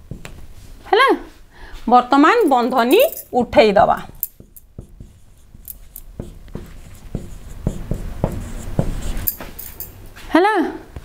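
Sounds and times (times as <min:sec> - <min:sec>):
marker pen writing on whiteboard: 0:03.9 - 0:09.6.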